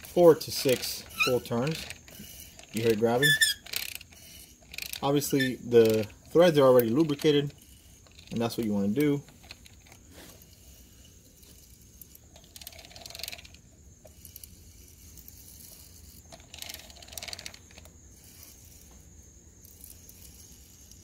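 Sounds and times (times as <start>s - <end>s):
socket ratchet clicking: 0.0s - 10.0s.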